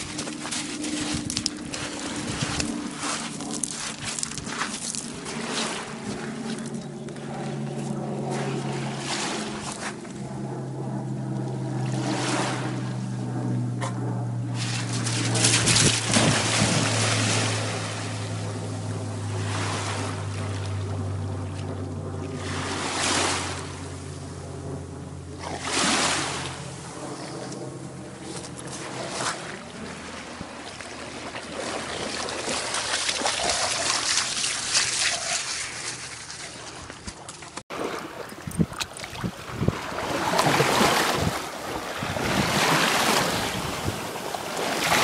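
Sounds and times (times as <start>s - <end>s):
steady low hum: 0.0s - 45.0s
wind: 0.0s - 45.0s
waves washing on shore: 14.6s - 18.4s, 19.2s - 20.7s, 22.4s - 23.8s, 25.6s - 26.7s, 37.7s - 45.0s.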